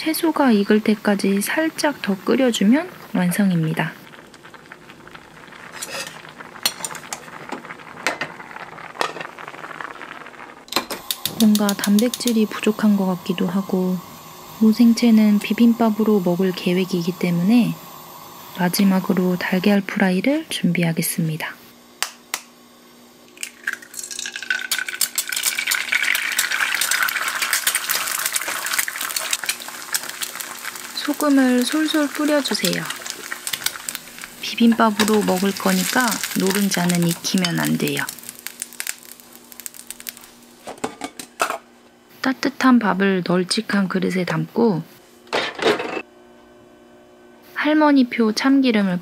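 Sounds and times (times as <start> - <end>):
egg sizzling in frying pan: 1.1 - 19.9, 23.3 - 41.4
stew bubbling: 2.9 - 10.7, 23.4 - 40.4.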